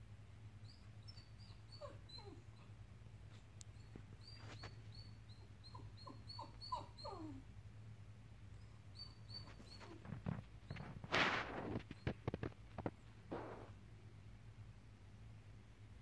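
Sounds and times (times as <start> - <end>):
dog whimpering: 0.6 - 2.7, 3.8 - 7.5, 8.6 - 10.9
faint high chirps: 3.6 - 7.1, 8.6 - 10.0.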